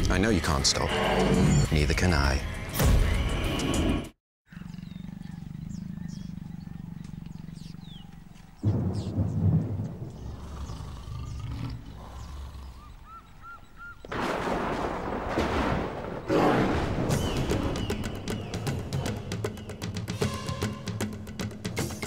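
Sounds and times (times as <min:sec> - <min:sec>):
deep rumbling boom: 0:08.6 - 0:10.6.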